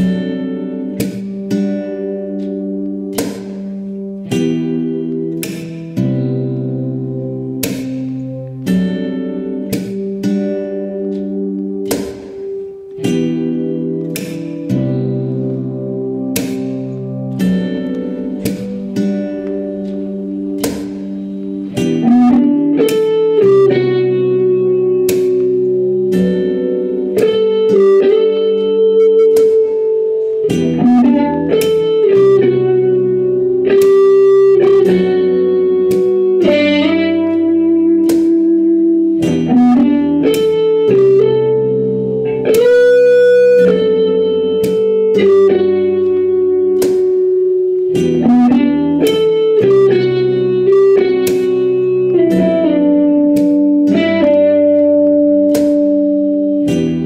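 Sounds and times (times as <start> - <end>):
plucked guitar melody: 0.0 - 57.0.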